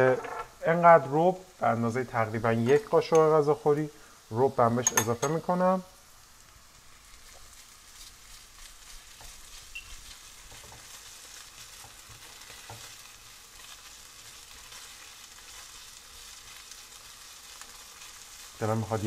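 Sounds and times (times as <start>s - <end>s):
food sizzling in a pan: 0.0s - 19.0s
spatula knocking a pan: 11.8s - 13.0s.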